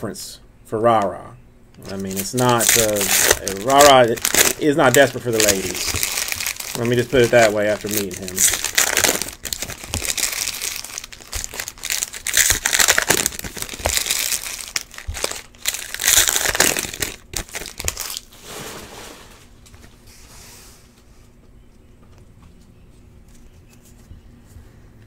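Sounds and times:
plastic wrappers crinkling: 1.8 - 18.4.

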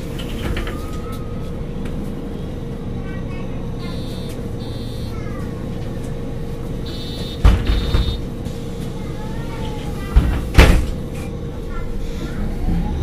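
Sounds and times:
bus engine idling: 0.0 - 13.0
short high beeps: 3.8 - 5.2, 6.9 - 8.2.

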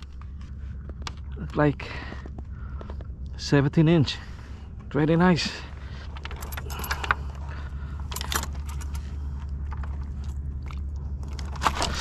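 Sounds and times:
steady low rumble: 0.0 - 12.0
kayak handling clicks and scrapes: 11.2 - 12.0.

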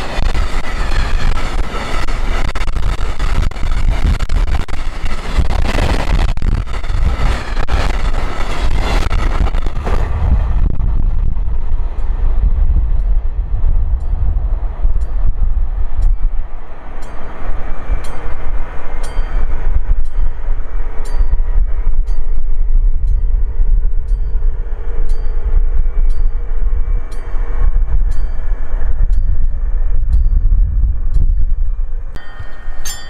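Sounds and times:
train rumbling past: 0.0 - 33.0
wheel clicks with high ring: 17.0 - 23.4, 24.0 - 30.6, 32.1 - 33.0.

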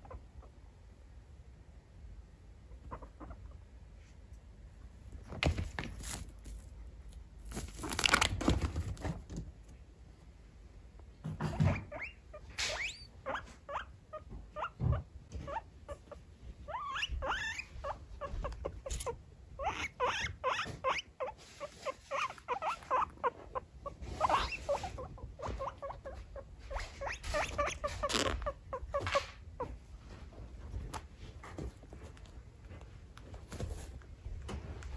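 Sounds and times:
guinea pig squeaking: 0.0 - 0.6, 2.6 - 3.8, 11.3 - 29.9.

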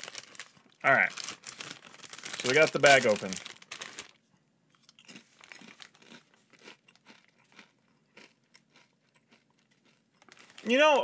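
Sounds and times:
chip bag crinkle: 0.0 - 4.2, 4.9 - 11.0
chip crunching being chewed: 4.8 - 11.0.

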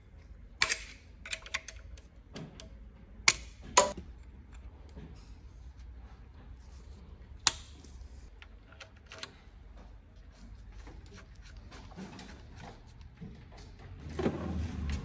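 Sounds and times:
metal parts clicking: 0.6 - 2.7.

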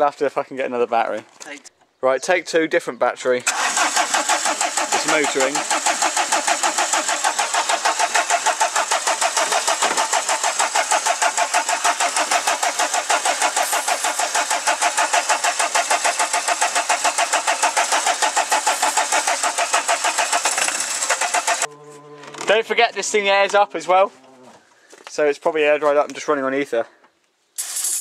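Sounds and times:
diesel engine cranking: 3.4 - 23.6, 27.6 - 28.0.

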